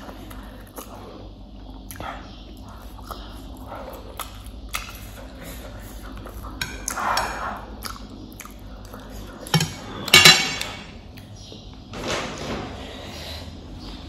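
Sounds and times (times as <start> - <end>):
chewing noodles: 0.0 - 9.5.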